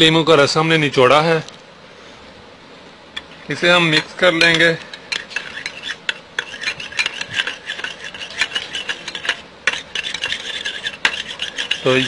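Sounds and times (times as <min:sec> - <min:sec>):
spoon scraping a bowl: 0:03.2 - 0:12.0.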